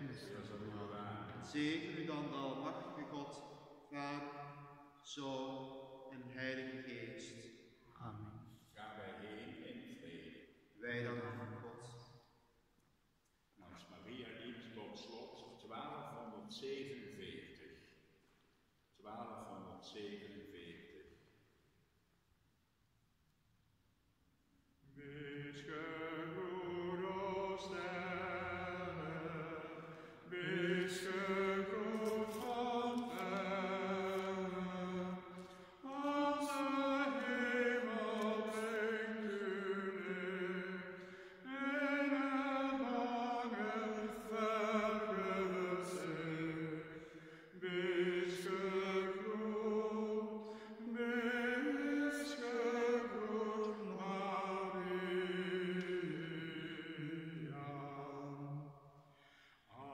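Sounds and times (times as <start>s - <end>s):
man singing a slow chant: 0.0s - 4.4s, 24.9s - 58.8s, 59.7s - 59.9s.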